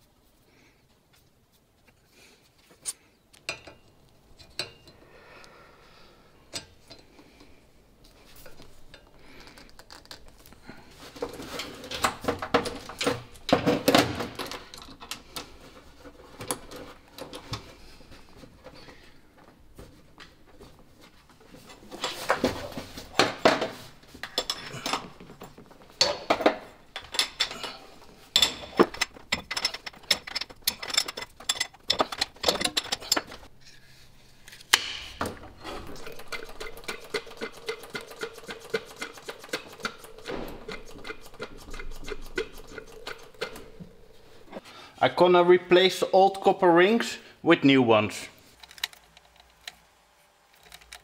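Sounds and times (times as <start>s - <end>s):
faint steady hum: 0.0s - 51.0s
hand tools clinking on metal: 2.8s - 5.0s, 24.2s - 33.5s.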